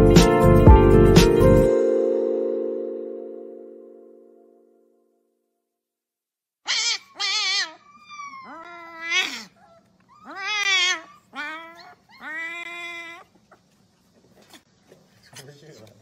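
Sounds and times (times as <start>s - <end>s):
puppy howling: 6.7s - 13.7s.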